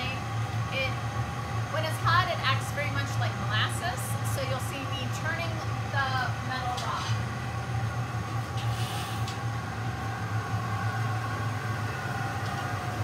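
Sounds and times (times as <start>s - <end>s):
glass furnace and blowers humming: 0.0s - 13.0s
brief hiss: 8.6s - 9.4s.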